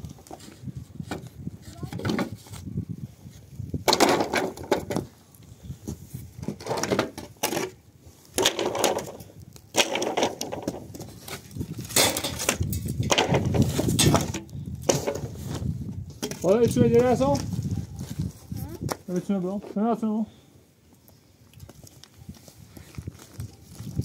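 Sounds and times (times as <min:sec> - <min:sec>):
wooden boards knocking together: 0:03.8 - 0:05.1, 0:08.4 - 0:10.9, 0:12.0 - 0:15.3.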